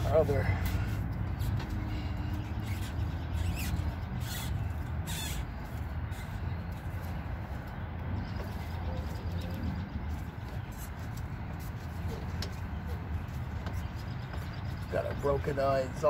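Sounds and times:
squeaks and scrapes of hand work: 0.7 - 7.2.

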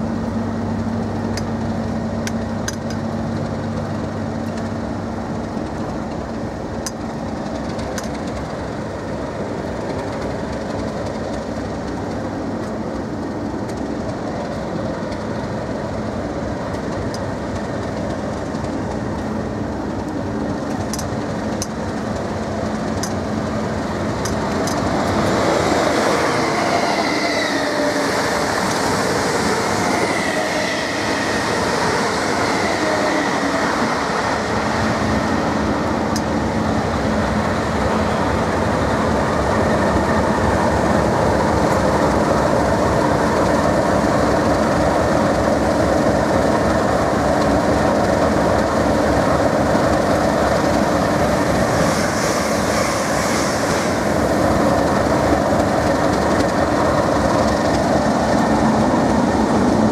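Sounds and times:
diesel locomotive idling: 0.0 - 59.9
train coaches rolling: 0.0 - 59.9
wheel and brake squeal: 26.1 - 28.4.

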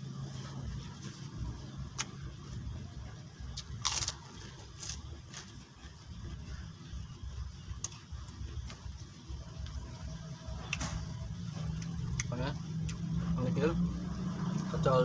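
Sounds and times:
steady low rumble: 0.0 - 15.0
crunch of food: 3.5 - 5.6
person chewing food: 3.5 - 6.7.

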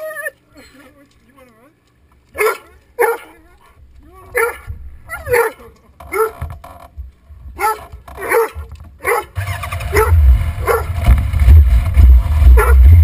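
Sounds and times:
dog barking and yipping: 2.3 - 3.4, 4.3 - 6.4, 7.6 - 11.0, 12.5 - 13.0
low fluctuating rumble: 9.9 - 13.0.

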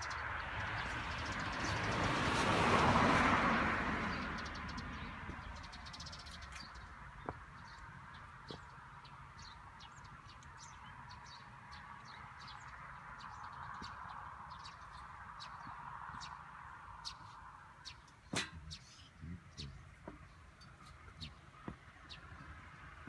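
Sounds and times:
vehicle passing: 0.0 - 10.0.

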